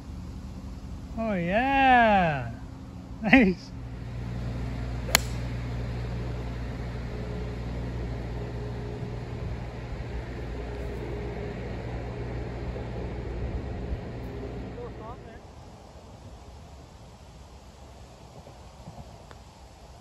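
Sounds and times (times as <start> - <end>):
steady low hum: 0.0 - 17.9
golf club striking ball: 5.0 - 5.6.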